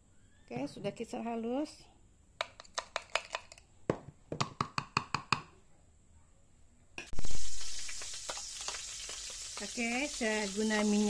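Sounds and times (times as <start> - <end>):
oil sizzling in a wok: 7.1 - 11.0.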